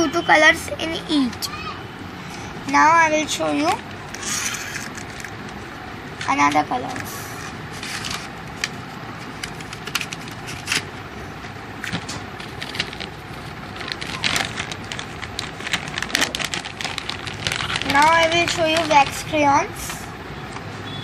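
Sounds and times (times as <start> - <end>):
packets crinkling: 11.8 - 19.4.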